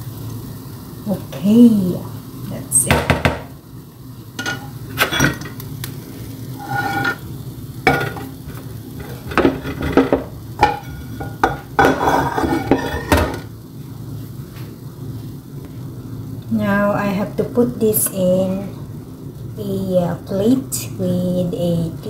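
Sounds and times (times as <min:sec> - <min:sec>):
spatula scraping frying pan: 0:06.5 - 0:07.3, 0:07.9 - 0:13.5.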